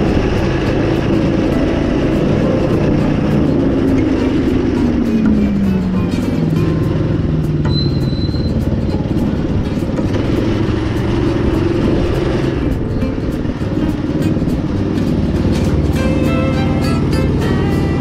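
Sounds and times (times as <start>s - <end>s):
small engine running: 0.0s - 18.0s.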